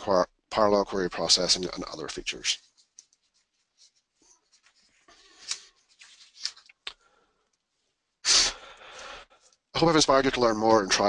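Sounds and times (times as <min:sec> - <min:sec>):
rustling and scratching near microphone: 0:01.6 - 0:06.8
breath into microphone: 0:08.3 - 0:09.6.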